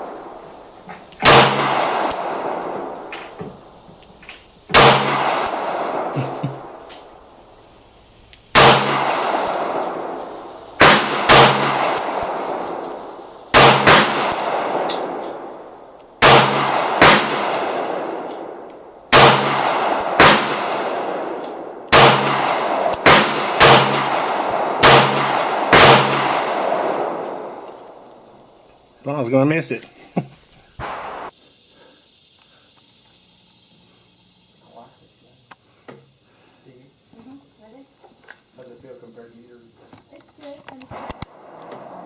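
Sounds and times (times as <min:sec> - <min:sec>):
pistol shots with echo: 0:01.2 - 0:03.1, 0:04.7 - 0:06.8, 0:08.5 - 0:15.6, 0:16.2 - 0:28.0, 0:30.8 - 0:31.3.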